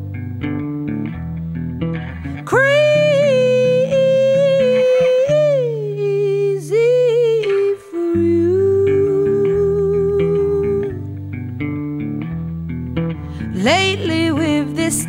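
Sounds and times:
guitar and bass: 0:00.0 - 0:15.0
pop song with hummed vocal: 0:02.2 - 0:11.2, 0:13.3 - 0:15.0.

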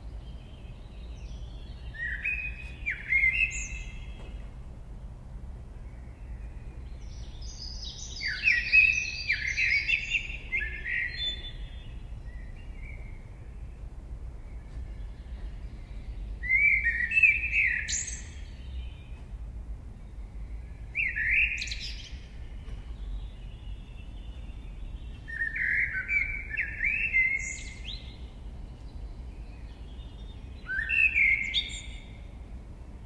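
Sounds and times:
songbird singing: 0:00.0 - 0:33.0
low background rumble: 0:10.1 - 0:17.0.

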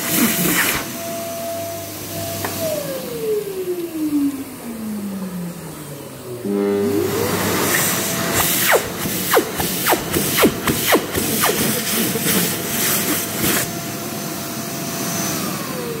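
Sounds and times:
hand dryer blowing: 0:00.0 - 0:16.0.

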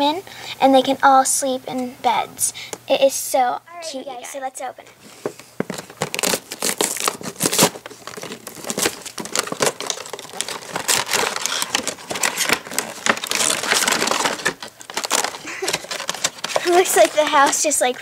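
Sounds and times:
plastic crinkling: 0:05.6 - 0:18.0
cardboard tearing: 0:05.7 - 0:17.7
small clicks and rustles: 0:08.0 - 0:18.0.

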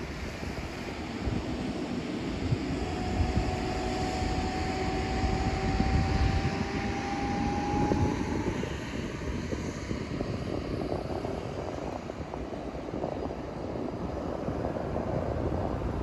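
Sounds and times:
thin high whine: 0:00.0 - 0:09.3
steady low rumble: 0:00.0 - 0:16.0
wind buffeting microphone: 0:00.0 - 0:16.0.

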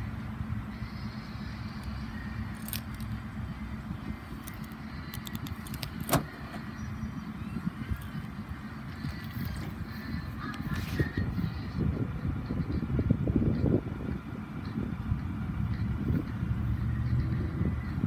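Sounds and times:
steady low rumble: 0:00.0 - 0:18.0
key fob clicking and jingling: 0:01.8 - 0:03.2, 0:04.3 - 0:06.3
tailgate unlatching clunk: 0:05.3 - 0:06.7.

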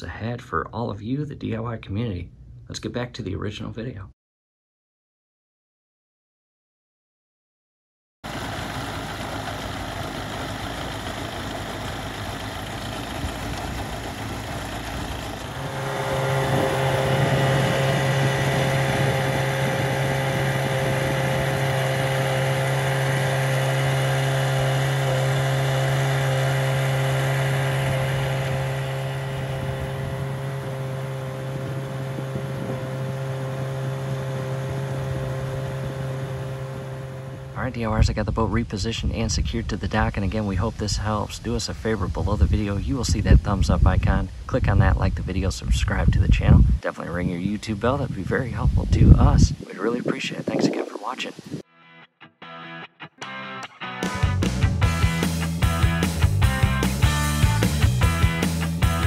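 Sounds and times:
outboard engine running: 0:08.2 - 0:38.2, 0:54.4 - 0:59.0
wind: 0:08.2 - 0:51.7
rush of boat wake: 0:08.3 - 0:37.8, 0:47.2 - 0:51.6.

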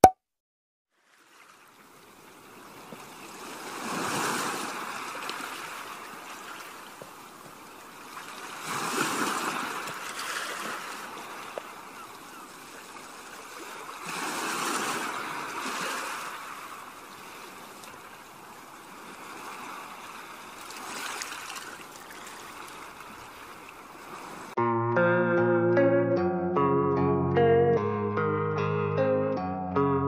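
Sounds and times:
low surf washing onto sand: 0:02.6 - 0:11.9.

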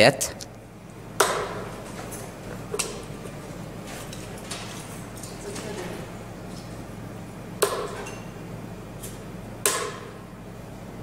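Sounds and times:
darts striking dartboard: 0:01.2 - 0:01.7, 0:09.6 - 0:10.2.

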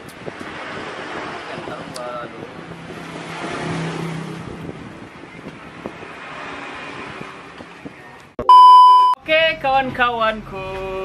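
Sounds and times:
vehicle passing: 0:02.6 - 0:08.1.

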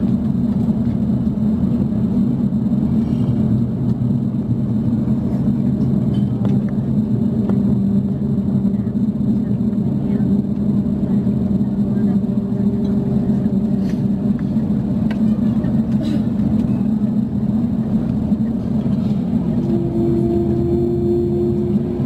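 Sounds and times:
air-conditioning drone: 0:00.0 - 0:22.0
jet engines idling: 0:00.0 - 0:22.0.

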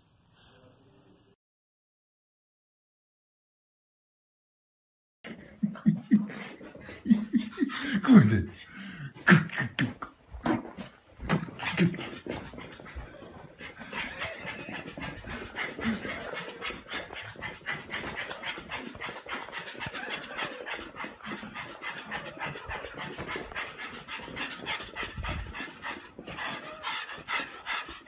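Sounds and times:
dog panting fast: 0:05.3 - 0:09.0, 0:11.2 - 0:28.0.

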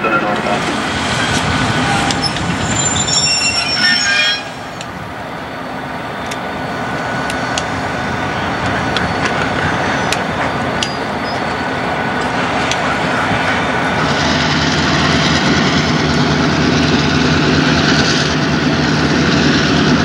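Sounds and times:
locomotive engines running: 0:00.0 - 0:20.0
high-pitched tones: 0:01.8 - 0:07.6.

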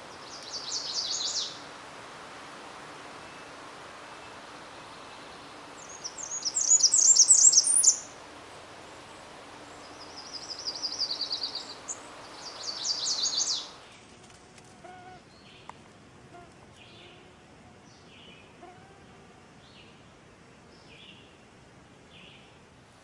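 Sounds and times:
background hiss: 0:00.0 - 0:23.0
warbler singing: 0:00.1 - 0:01.6, 0:03.2 - 0:08.2, 0:09.1 - 0:14.0.

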